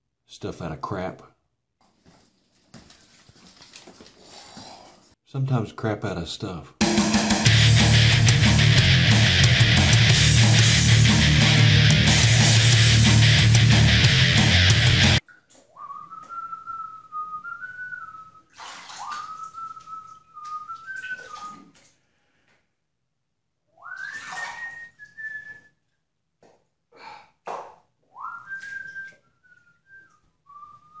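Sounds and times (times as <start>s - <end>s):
person whistling a tune: 15.8s - 18.5s, 19.1s - 21.6s, 23.8s - 25.7s, 28.1s - 31.0s.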